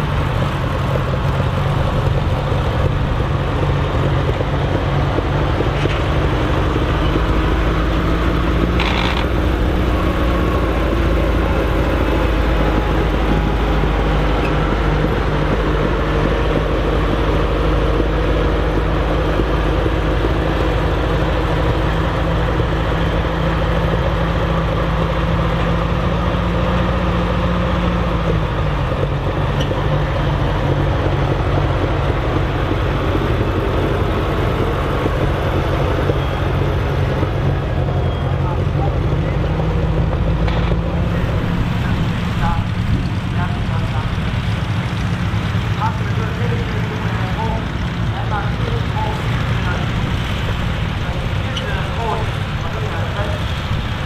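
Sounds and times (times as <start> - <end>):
tractor engine running: 0.0 - 54.0.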